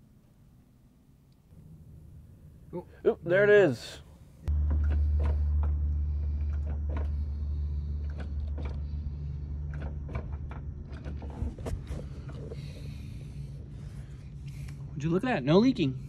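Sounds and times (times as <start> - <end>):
low rumble: 4.0 - 15.0.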